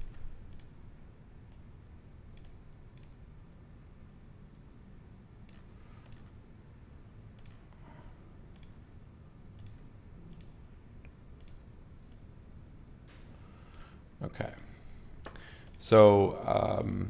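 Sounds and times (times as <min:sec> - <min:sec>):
computer mouse clicking: 0:00.0 - 0:00.8, 0:02.3 - 0:03.2, 0:05.4 - 0:06.4, 0:07.4 - 0:07.8, 0:08.5 - 0:08.8, 0:09.5 - 0:12.3, 0:13.7 - 0:15.9
faint room hum: 0:00.0 - 0:17.0.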